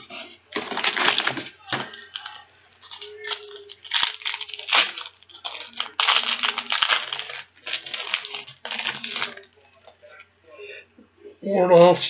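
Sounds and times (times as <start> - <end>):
wrapper crinkling and rustling: 0.0 - 10.2.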